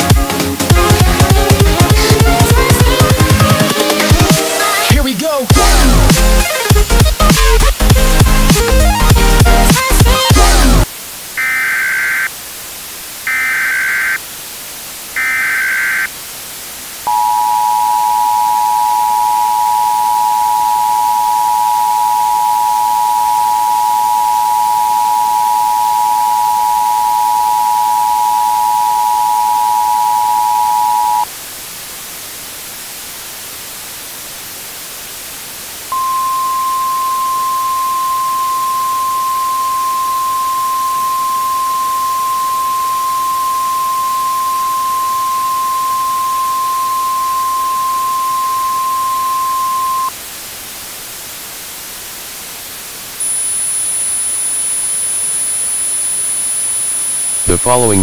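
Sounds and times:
static hiss: 0:00.0 - 0:58.0
two-tone alert signal: 0:17.1 - 0:31.2, 0:35.9 - 0:50.1
single steady tone: 0:17.1 - 0:31.3, 0:35.9 - 0:50.2, 0:53.2 - 0:58.0.

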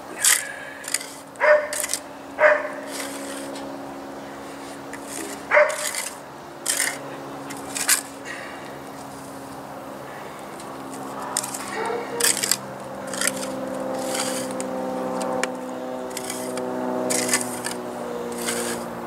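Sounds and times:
steady multi-tone hum: 0:00.0 - 0:19.0
trowel scraping wet cement: 0:00.2 - 0:02.0, 0:02.6 - 0:03.7, 0:04.4 - 0:08.2, 0:11.0 - 0:19.0.

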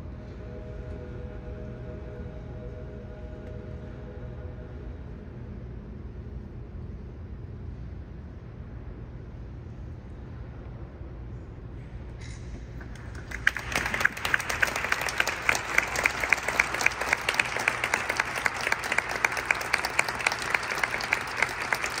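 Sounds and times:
low hum: 0:00.0 - 0:22.0
audience clapping: 0:12.8 - 0:22.0.

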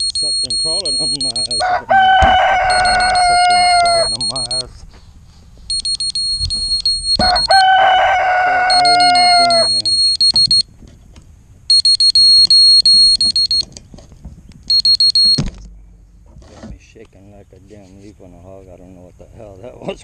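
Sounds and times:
electronic alarm beeping: 0:00.0 - 0:04.8, 0:05.7 - 0:10.7, 0:11.7 - 0:13.7, 0:14.6 - 0:15.8
thump: 0:02.2 - 0:02.8, 0:15.2 - 0:16.8.

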